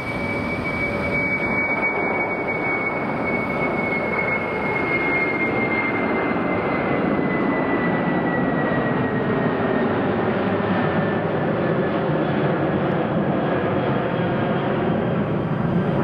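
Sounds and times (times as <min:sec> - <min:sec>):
high whine falling in pitch: 0:00.0 - 0:08.2
jet engines roaring: 0:00.0 - 0:16.0.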